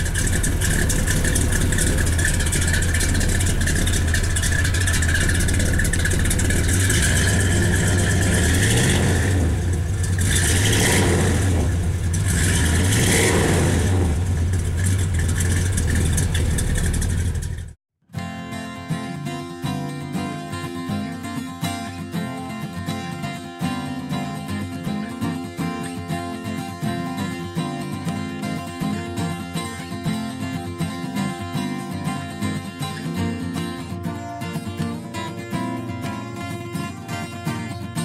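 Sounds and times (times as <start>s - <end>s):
car engine idling and revving: 0.0s - 17.8s.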